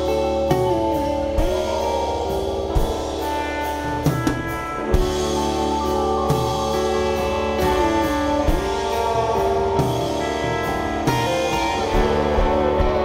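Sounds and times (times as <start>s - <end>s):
rock band playing: 0.0s - 13.0s.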